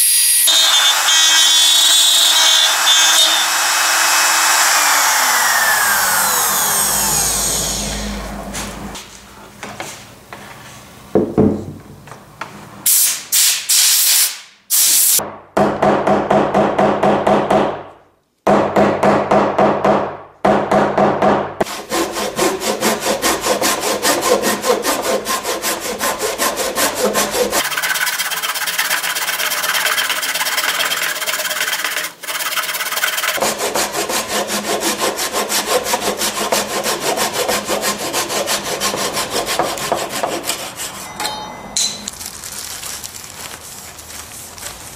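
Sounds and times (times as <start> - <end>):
hand work bursts: 0.0 - 8.1, 21.6 - 42.0
router motor spinning down: 0.0 - 8.3
hand saw cutting wood: 0.5 - 8.7, 21.6 - 41.1.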